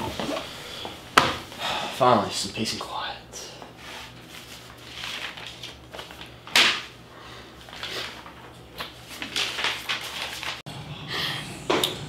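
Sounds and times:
paper rustling: 3.9s - 6.5s, 7.6s - 10.6s.

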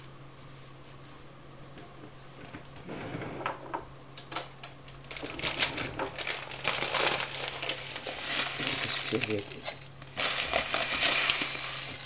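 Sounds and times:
steady low hum: 0.0s - 12.0s
plastic packet crinkling: 4.9s - 12.0s.

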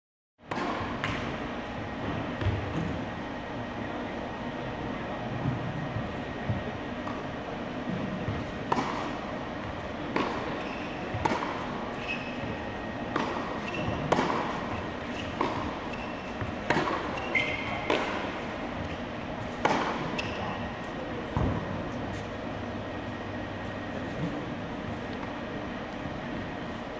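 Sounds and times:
tennis ball hits and bounces: 0.5s - 1.3s, 7.9s - 9.2s, 10.1s - 11.7s, 13.1s - 20.5s.

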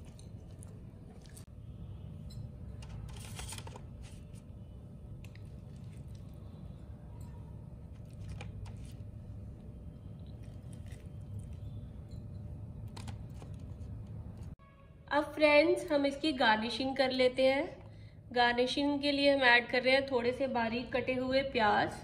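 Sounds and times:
faint low hum: 0.0s - 14.6s.

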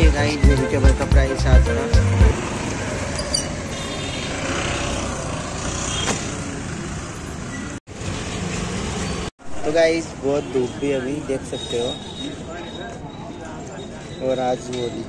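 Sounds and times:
music with a beat: 0.0s - 2.4s
road traffic: 0.0s - 15.0s.

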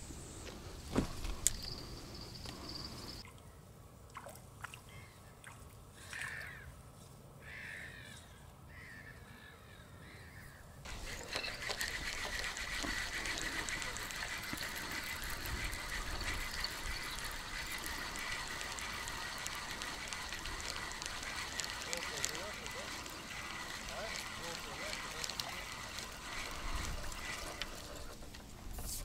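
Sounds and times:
bird calling: 7.4s - 29.0s.

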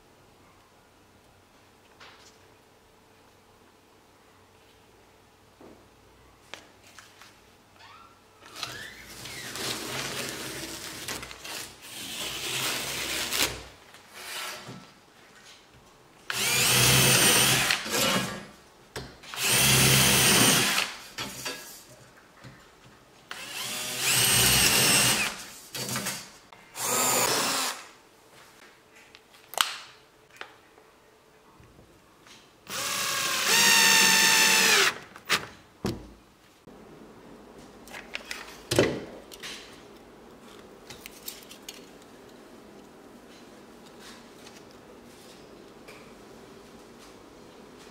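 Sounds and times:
cordless drill whining: 16.3s - 18.1s, 19.4s - 20.9s, 23.3s - 25.4s, 26.8s - 27.8s, 32.7s - 35.0s.

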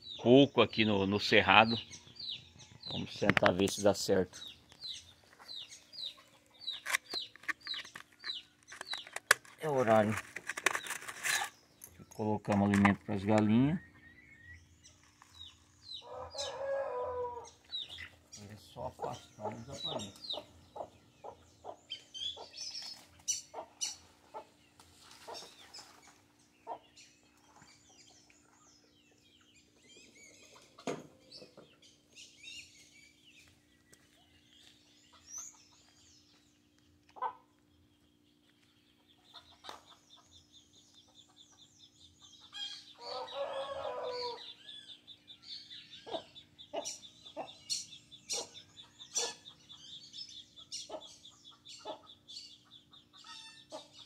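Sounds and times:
chickens clucking: 15.3s - 28.2s, 30.3s - 31.8s, 37.0s - 37.7s, 38.9s - 40.4s, 46.0s - 54.0s.

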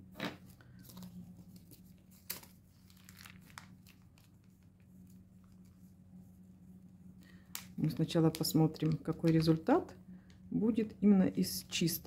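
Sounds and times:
faint low hum: 0.0s - 12.0s
plastic sheet crinkling: 0.2s - 5.8s.

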